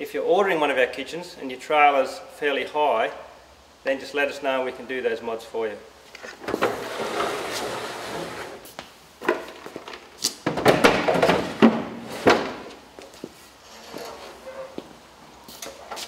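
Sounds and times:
kitchen unit scraping slide: 0:06.4 - 0:08.7, 0:11.2 - 0:12.7, 0:13.6 - 0:14.8
clunks and knocks: 0:09.2 - 0:12.7.

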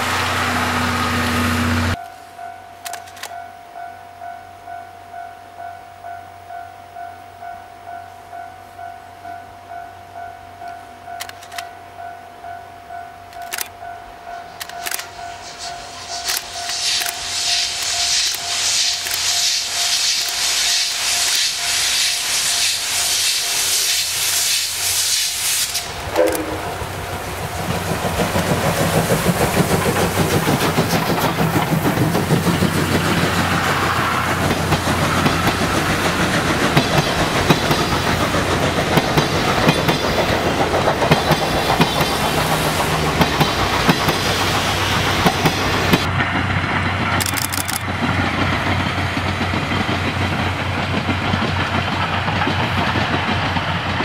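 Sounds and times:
loud hiss of steam: 0:00.0 - 0:02.0, 0:15.2 - 0:46.1
steam locomotive exhaust beating: 0:00.0 - 0:02.1, 0:12.8 - 0:54.0
train coaches rumbling past: 0:00.0 - 0:54.0
wheels clacking over rail joints: 0:25.7 - 0:54.0.

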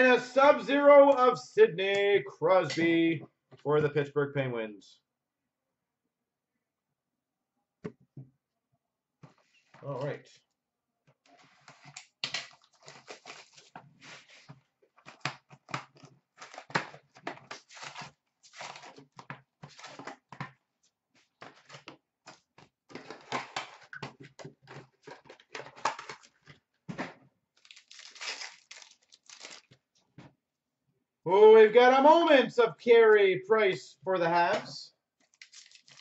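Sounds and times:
card packs rustling and crinkling: 0:11.4 - 0:20.4, 0:21.2 - 0:29.9, 0:34.6 - 0:36.0.

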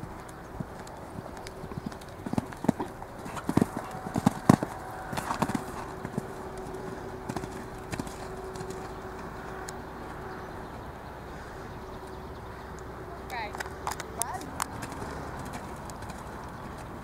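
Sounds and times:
horse hoofbeats on sand: 0:00.0 - 0:10.2, 0:14.4 - 0:17.0
heavy thuds of horse jumping: 0:02.2 - 0:08.9.

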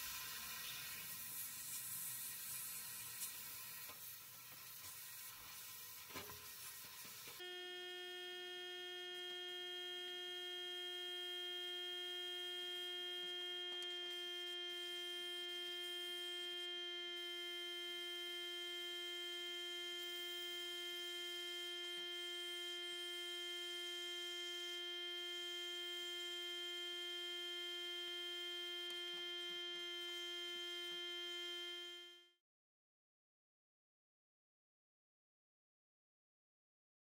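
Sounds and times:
small electric motor humming: 0:07.3 - 0:32.4.

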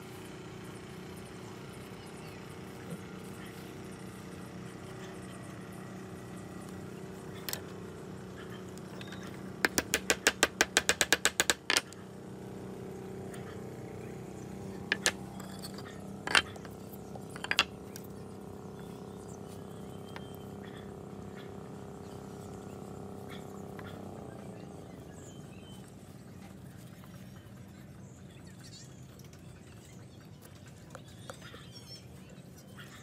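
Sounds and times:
steady low hum: 0:00.0 - 0:33.0
sharp clicks: 0:08.8 - 0:12.0.

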